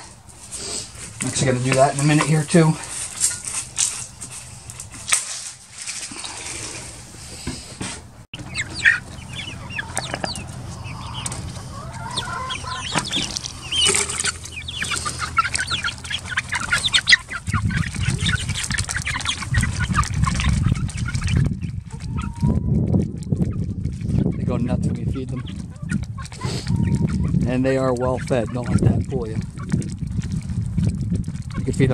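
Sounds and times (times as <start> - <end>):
low rumble: 8.4 - 27.6, 28.8 - 31.9
chicks clucking and chirping: 8.4 - 30.1, 31.5 - 31.9.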